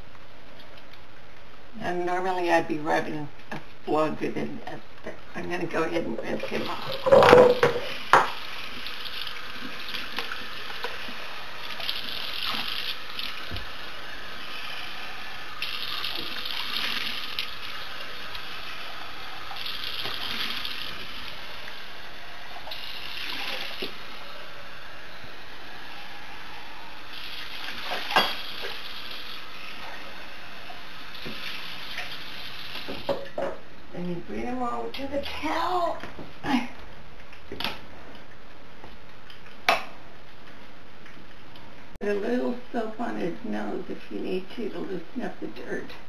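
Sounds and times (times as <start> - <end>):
faucet running: 5.8 - 33.4.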